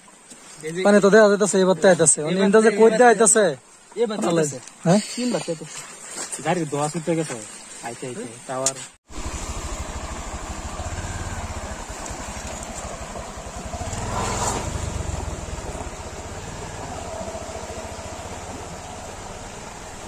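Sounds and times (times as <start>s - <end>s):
motorcycle engine at low speed: 9.0s - 20.0s
water splashing around wheels: 9.0s - 20.0s.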